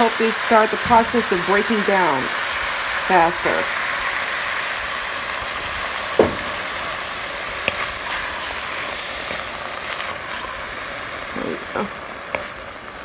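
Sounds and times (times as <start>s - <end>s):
vegetables sizzling in a pot: 0.0s - 13.0s
wooden spoon knocking pot: 6.2s - 6.8s.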